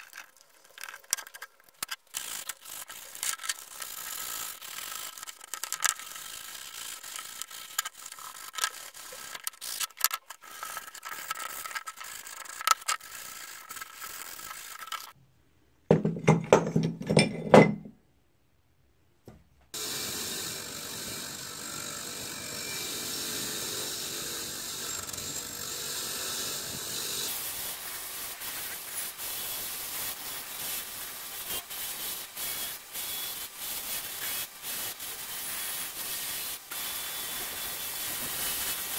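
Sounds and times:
hand drill gears clicking: 0:00.0 - 0:15.2, 0:19.8 - 0:27.4.

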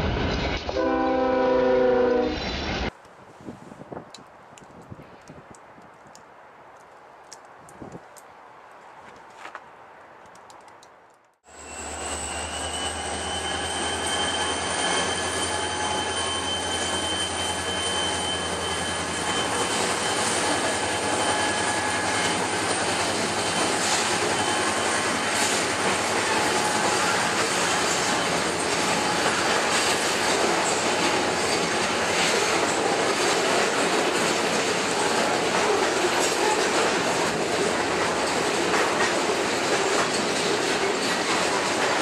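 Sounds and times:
high-pitched wheel squeal: 0:11.5 - 0:25.6
boxcars rolling: 0:11.5 - 0:42.0
wheels clicking over rail joints: 0:25.1 - 0:42.0.

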